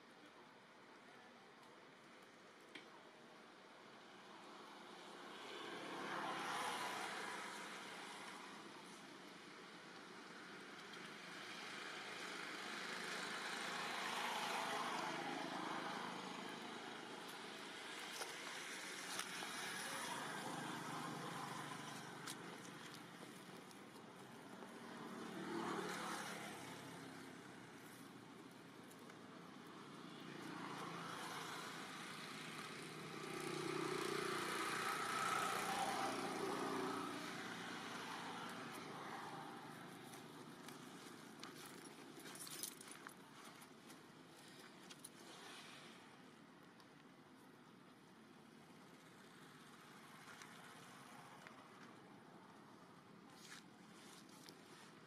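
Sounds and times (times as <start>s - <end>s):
road vehicle passing by: 4.4s - 28.0s, 29.5s - 41.8s
distant engine passing by: 30.4s - 40.0s.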